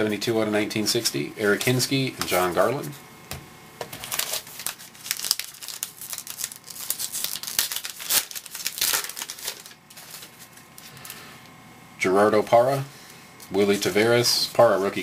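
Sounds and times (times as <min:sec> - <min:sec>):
wrapper crinkling and tearing: 0:04.0 - 0:11.2.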